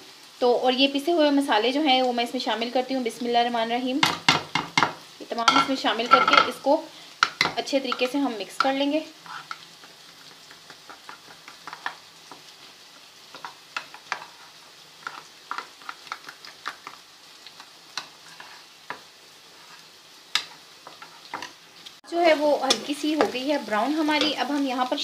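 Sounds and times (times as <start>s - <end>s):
onions sizzling in a pan: 0.0s - 25.0s
spoon scraping a pan: 4.0s - 12.6s, 13.3s - 21.6s, 22.7s - 24.7s.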